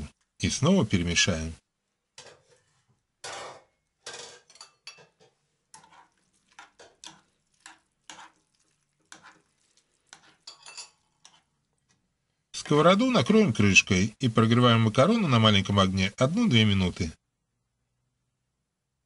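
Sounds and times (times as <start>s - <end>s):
metal spoon scraping pan: 2.2s - 12.0s.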